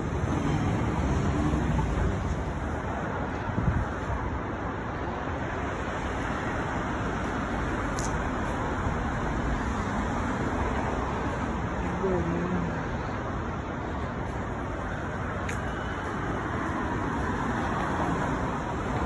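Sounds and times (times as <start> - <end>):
cars driving past: 0.0 - 19.0.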